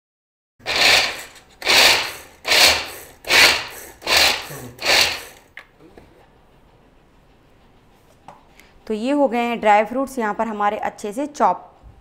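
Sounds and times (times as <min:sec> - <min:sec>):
chopper cord pulls: 0:00.6 - 0:05.5
food chopper blades whirring: 0:00.6 - 0:05.5.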